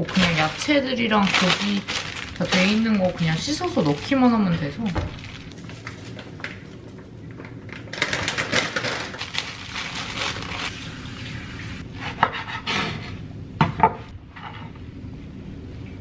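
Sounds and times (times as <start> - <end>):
crackling rustling noise: 0.0 - 10.9.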